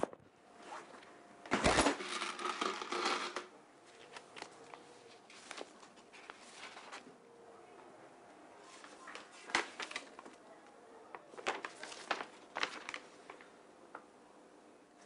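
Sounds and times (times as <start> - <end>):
paper rustling and crinkling: 1.5 - 7.2, 8.6 - 14.0.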